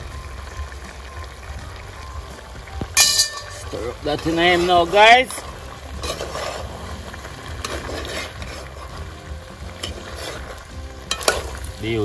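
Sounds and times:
food sizzling: 0.0 - 12.0
spoon stirring stew: 4.2 - 11.8.

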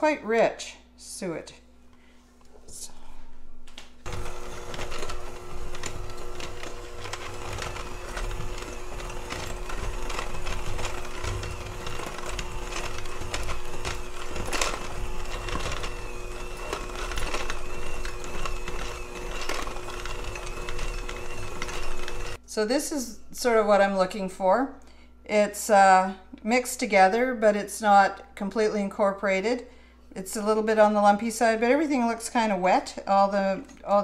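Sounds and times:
electric hand mixer running: 4.0 - 22.4.

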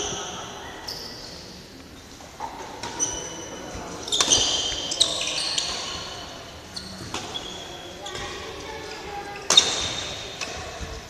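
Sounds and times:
sneakers squeaking on court floor: 2.0 - 10.8.

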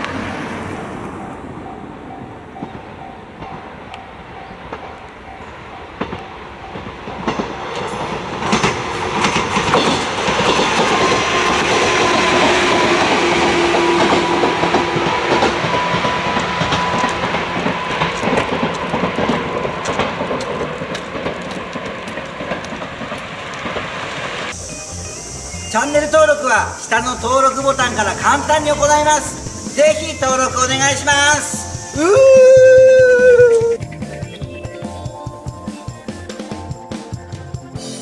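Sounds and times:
wheels clicking over rail joints: 0.0 - 24.6
electric train passing: 0.0 - 38.0.

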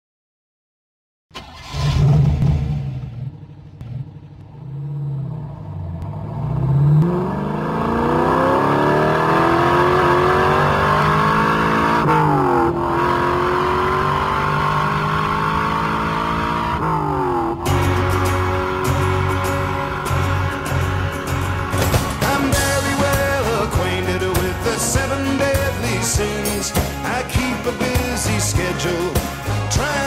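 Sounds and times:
car engine revving and accelerating: 1.6 - 24.3.

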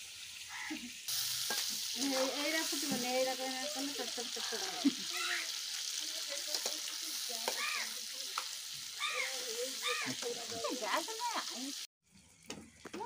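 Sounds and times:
prawns sizzling in hot oil: 0.0 - 13.0
rising and falling calls: 9.0 - 10.2.

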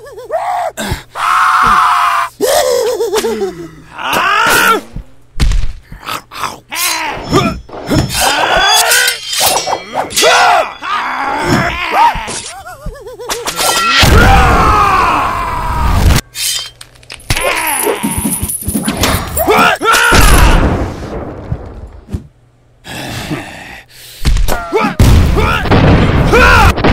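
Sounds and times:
strained cries and groans: 5.9 - 15.8.

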